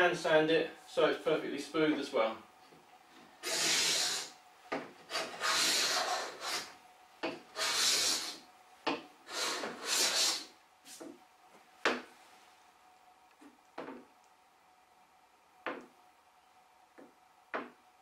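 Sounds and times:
sanding block strokes on wood: 3.4 - 4.3, 5.1 - 6.7, 7.6 - 8.4, 9.3 - 10.5.

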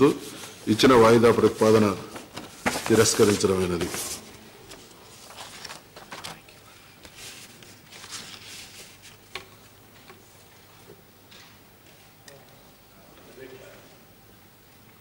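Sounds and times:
soft rustles: 0.1 - 6.4, 7.0 - 9.4.

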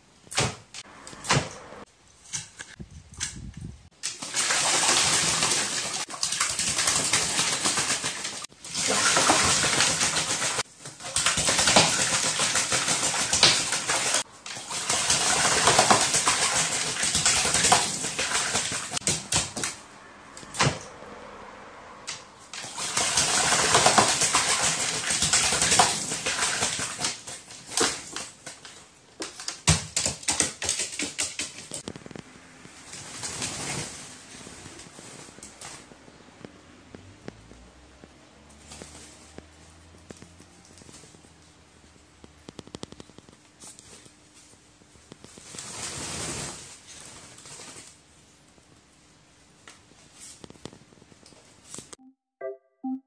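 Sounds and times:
bird splashing in water: 4.0 - 19.8, 22.0 - 28.6.

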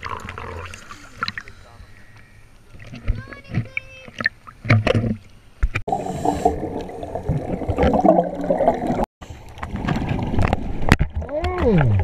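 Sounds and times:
water splashing: 0.0 - 12.0
underwater bubbling and gurgling: 4.2 - 12.0.

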